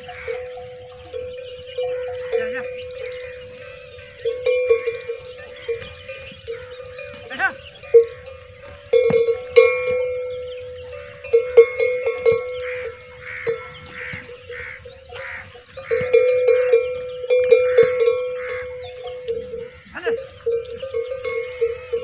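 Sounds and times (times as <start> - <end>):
metal bells clanking: 0.0 - 22.0.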